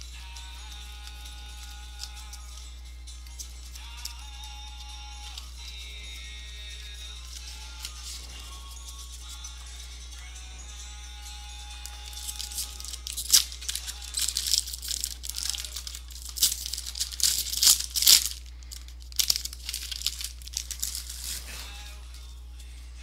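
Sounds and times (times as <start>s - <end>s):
steady low hum: 0.0s - 23.0s
wrapper crinkling and tearing: 11.8s - 22.0s.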